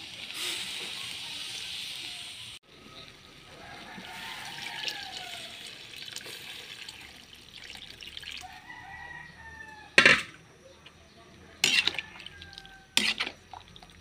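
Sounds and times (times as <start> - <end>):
rooster crowing: 3.4 - 5.8, 8.4 - 10.0, 11.7 - 13.0
water poured into a wok: 3.6 - 8.7.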